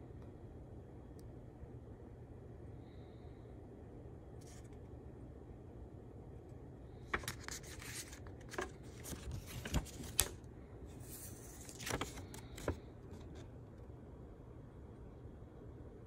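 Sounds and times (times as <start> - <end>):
banknote crinkling: 7.0 - 10.4, 11.0 - 13.5.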